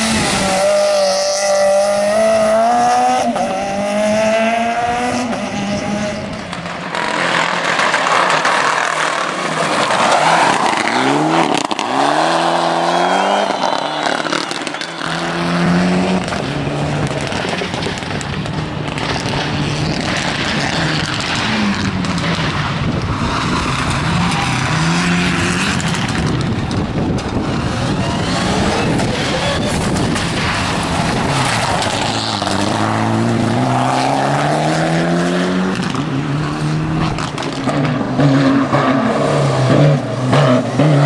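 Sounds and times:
rally car engines revving: 0.0 - 41.0
tyre squeal: 27.8 - 30.3.

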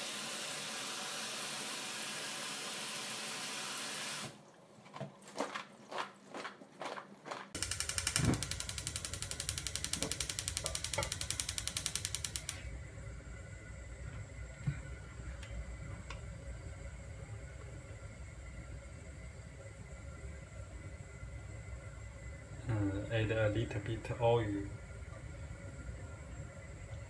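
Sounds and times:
tap water running into colander: 0.0 - 4.4
gas stove igniter ticking: 7.6 - 12.7.

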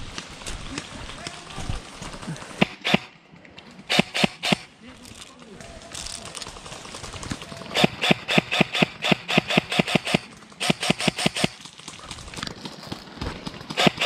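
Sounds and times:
airsoft gun firing bursts: 2.5 - 3.1, 3.9 - 4.7, 6.4 - 11.7, 13.5 - 14.0.

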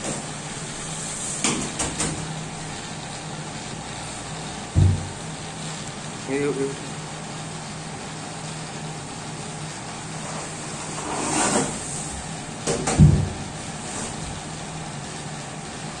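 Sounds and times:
steady low hum: 0.0 - 16.0
low thump of panel: 4.7 - 5.2, 12.7 - 13.4
panel scraping: 10.2 - 12.1.

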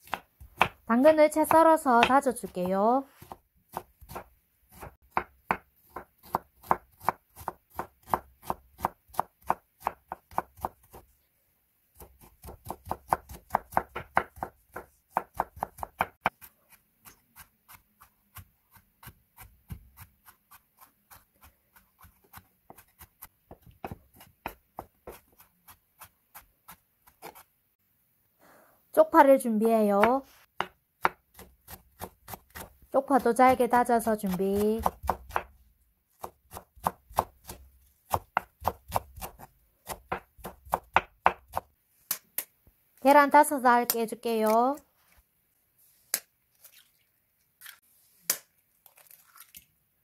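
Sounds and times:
knife chopping on wooden board: 0.0 - 0.9, 3.2 - 11.0, 12.0 - 16.5, 22.0 - 27.4, 30.0 - 32.8, 33.5 - 35.6, 36.2 - 41.7.

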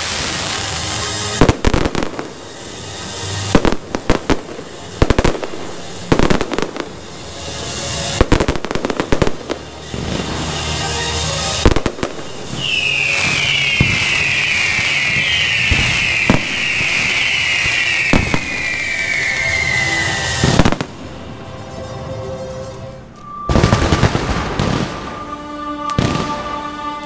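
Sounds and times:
fireworks bangs: 0.0 - 21.3, 23.4 - 27.0
fireworks crackling hiss: 0.0 - 22.0, 23.3 - 27.0
falling whistles: 12.1 - 20.8, 23.2 - 27.0.

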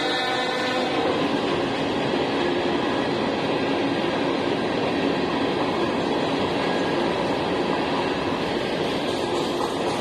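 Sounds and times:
steel train wheels on rails: 0.0 - 10.0.

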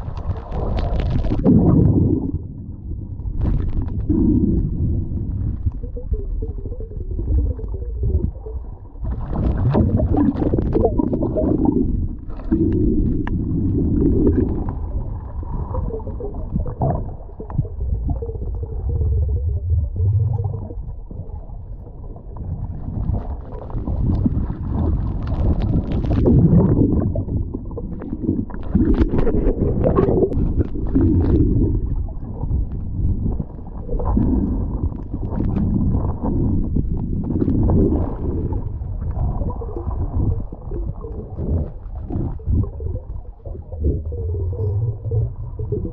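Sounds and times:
water gurgling surges: 0.0 - 32.7
muffled underwater rumble: 0.0 - 45.9.

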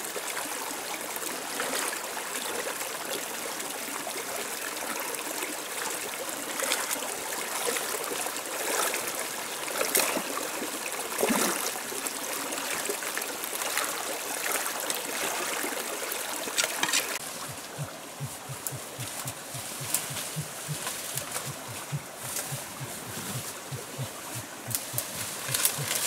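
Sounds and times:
shallow stream running over rocks: 0.0 - 26.0
splashing in water: 13.6 - 26.0.

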